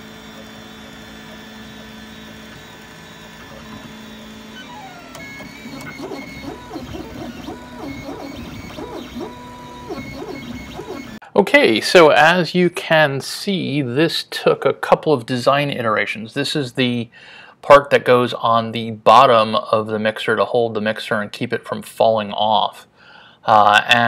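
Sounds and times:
printer stepper motors whining: 0.0s - 11.2s.

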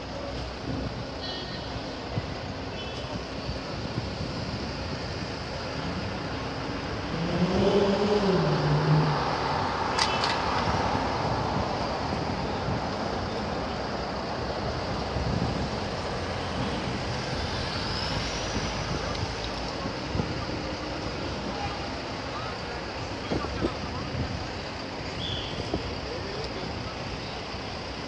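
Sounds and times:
cars and vans passing: 0.0s - 28.0s
vehicle engine passing by: 7.0s - 11.3s.

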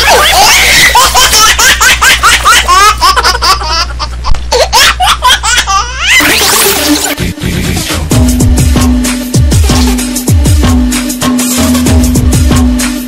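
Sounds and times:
high-pitched laughter: 0.0s - 6.8s.

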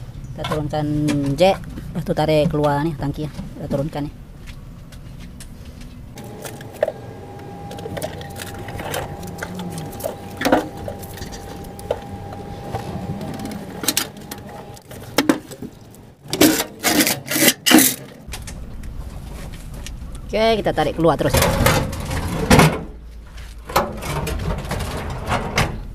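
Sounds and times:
floor jack whine: 6.2s - 15.1s.

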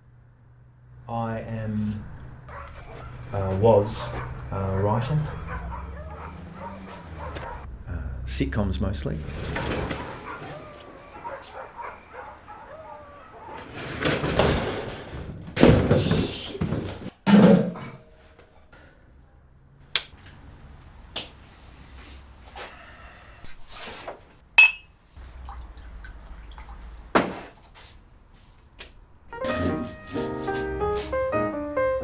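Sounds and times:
overhead door rattling and slamming: 9.2s - 11.4s, 13.4s - 15.9s.

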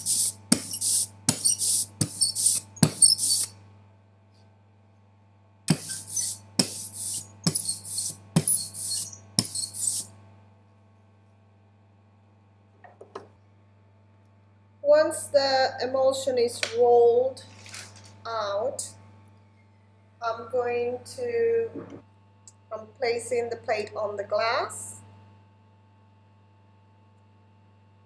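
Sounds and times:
hand roller clicking and hissing: 0.0s - 3.5s, 5.7s - 10.1s.

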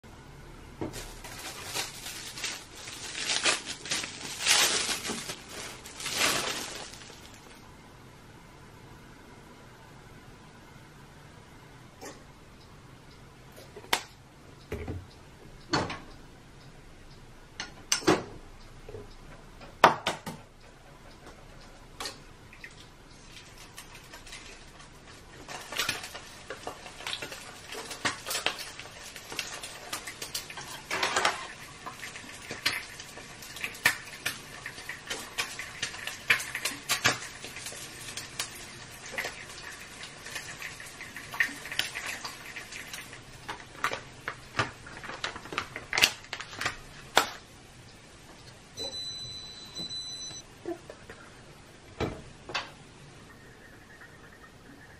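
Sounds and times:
kitchen knocks and clatters: 19.7s - 20.5s, 25.4s - 32.9s.

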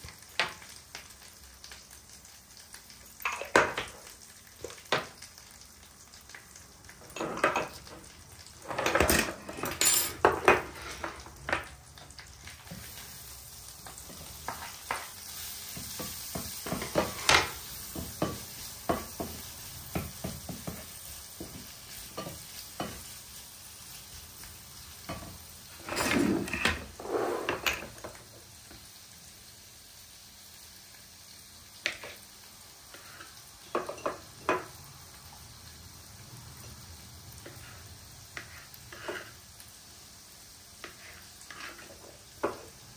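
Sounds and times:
olives sizzling in a pan: 0.0s - 42.9s
clattering into pan: 3.2s - 5.2s, 7.0s - 11.8s, 15.8s - 19.4s, 25.1s - 28.2s, 33.7s - 34.7s
wooden spoon scraping a pan: 8.6s - 11.7s, 13.8s - 23.1s, 25.7s - 28.2s, 37.4s - 39.4s, 40.8s - 42.8s.

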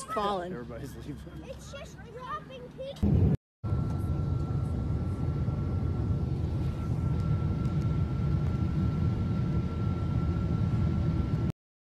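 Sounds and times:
thin steady high tone: 0.0s - 2.3s
aircraft cabin engine roar: 1.4s - 11.5s.

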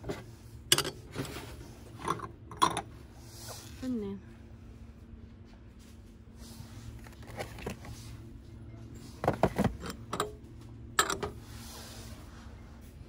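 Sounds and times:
glass bowls and cups clinking: 2.0s - 2.9s.

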